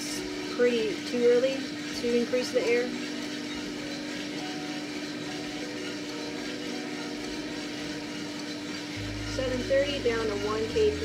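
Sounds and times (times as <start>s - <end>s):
coffee roaster hum: 0.0s - 11.0s.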